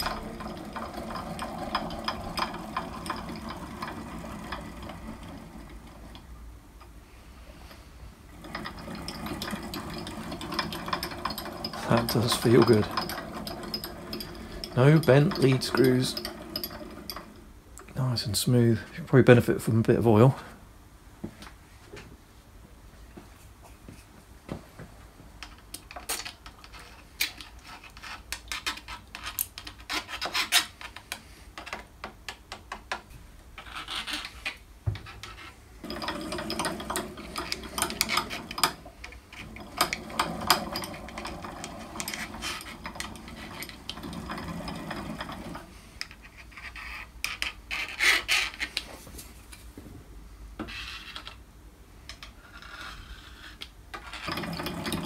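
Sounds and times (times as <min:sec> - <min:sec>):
metal table rasping slide: 0:00.0 - 0:06.2, 0:07.6 - 0:17.4, 0:35.1 - 0:47.1, 0:52.4 - 0:55.0.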